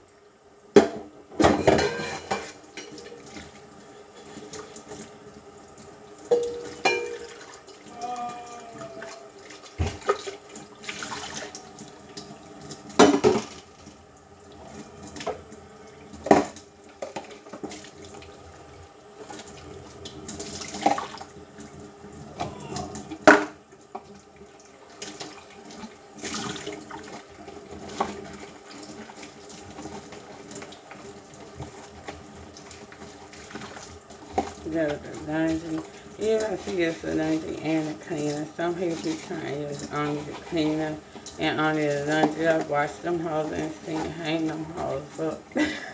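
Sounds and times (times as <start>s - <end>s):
running water at a sink: 0.0s - 45.9s
dishes clinking: 0.8s - 3.1s, 6.3s - 7.4s.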